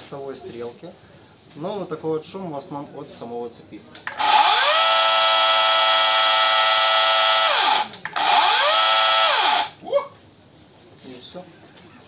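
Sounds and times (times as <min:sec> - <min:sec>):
cordless chainsaw whining: 0:04.1 - 0:09.8.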